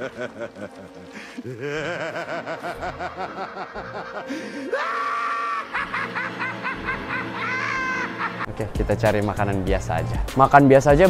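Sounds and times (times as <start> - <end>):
cartoon villain cackling laugh: 1.6 - 8.5.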